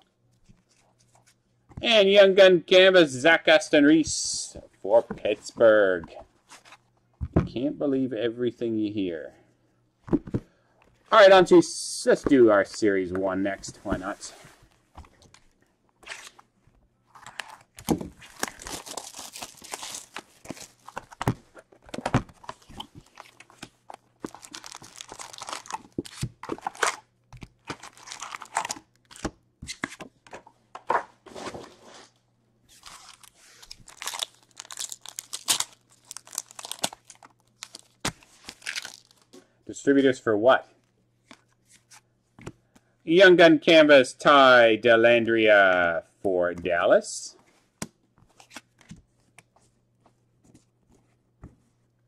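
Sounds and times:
plastic wrappers tearing and crinkling: 17.1 - 21.2, 24.2 - 27.0, 27.6 - 29.2, 32.7 - 39.3.

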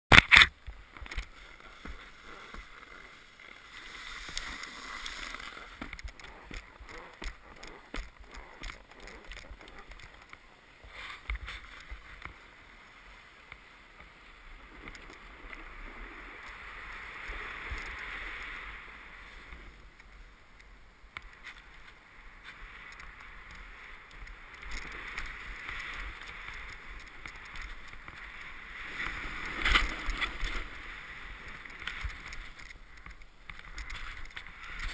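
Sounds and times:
snowboard scraping on snow: 1.2 - 9.9, 21.5 - 32.6.

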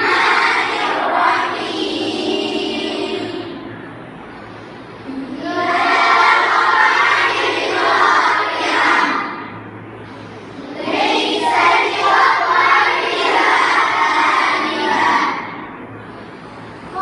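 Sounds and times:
girls chanting in unison: 0.0 - 3.7, 5.1 - 9.6, 10.6 - 15.8.

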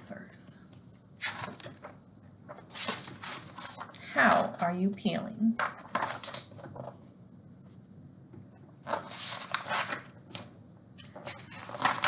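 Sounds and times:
paper pages rustling: 0.8 - 4.0, 5.6 - 7.1, 8.8 - 12.0.

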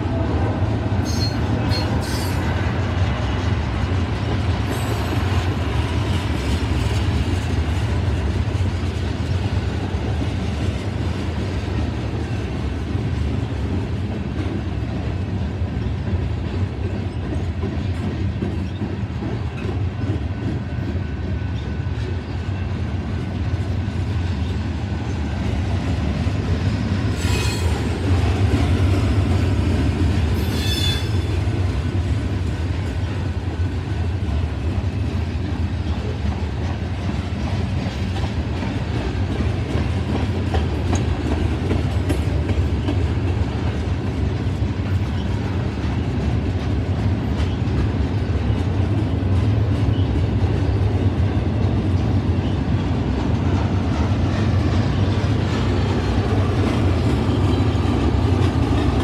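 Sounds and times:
train wheels rumbling on rail: 0.0 - 59.0
high wheel squeal: 30.4 - 31.3.

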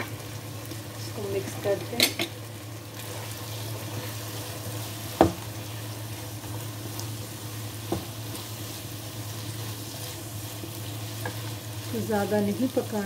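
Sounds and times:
food sizzling in a wok: 0.0 - 13.0.

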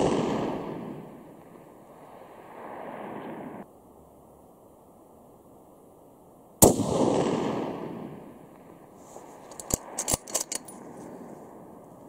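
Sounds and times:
rifle shot: 0.0 - 1.3, 6.6 - 8.3.

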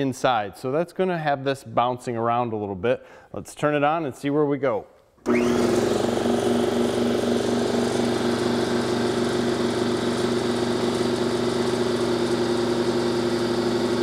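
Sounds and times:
air compressor running: 5.2 - 14.0.

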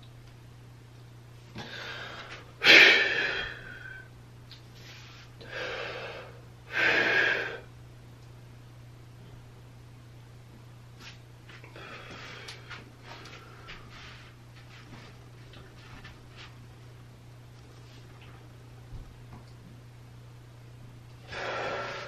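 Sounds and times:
man breathing heavily: 1.6 - 4.1, 5.4 - 7.7, 11.7 - 14.4, 21.2 - 22.0.

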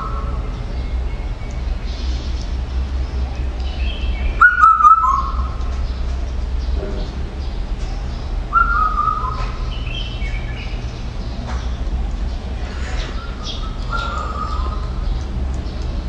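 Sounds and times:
steady low hum: 0.0 - 16.0
loud descending whistled calls: 3.8 - 5.6, 8.5 - 10.5.

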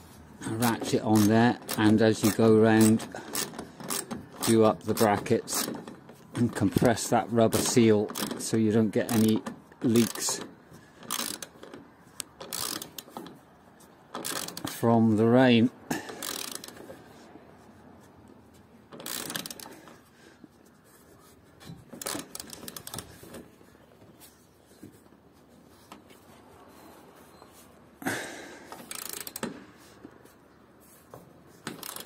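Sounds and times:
socket ratchet clicking: 0.8 - 6.0, 7.6 - 8.5, 9.1 - 13.3, 14.1 - 14.8, 16.1 - 16.9, 18.9 - 20.0, 22.0 - 23.1, 28.7 - 29.6, 31.6 - 32.0.

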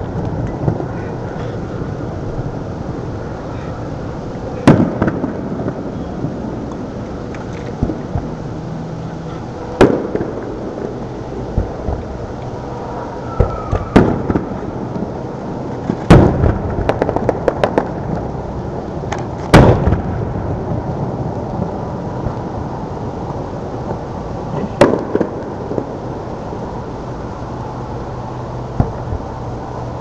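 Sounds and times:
crackling pops: 4.3 - 8.4, 13.4 - 18.3, 19.0 - 20.3, 23.2 - 26.4
firework shells bursting: 4.6 - 6.4, 9.7 - 12.4, 13.2 - 18.3, 19.1 - 20.3.

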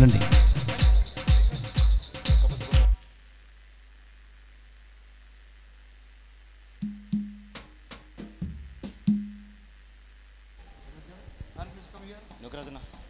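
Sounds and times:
faint steady hum: 0.0 - 13.0
drum hits with ringing tone: 6.8 - 7.6.

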